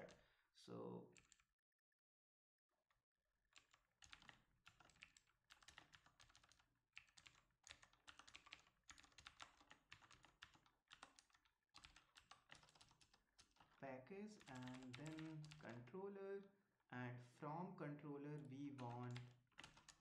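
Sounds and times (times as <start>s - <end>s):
faint keyboard typing: 0.0s - 0.2s, 1.1s - 1.5s, 3.5s - 16.0s, 18.4s - 20.0s.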